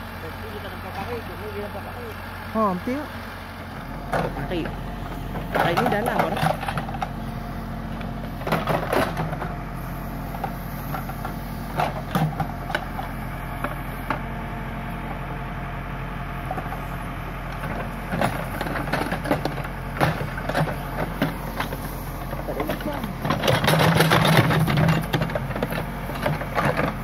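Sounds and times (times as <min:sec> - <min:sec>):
diesel engine running: 0:00.0 - 0:27.0
bucket knocking and scraping: 0:22.6 - 0:27.0.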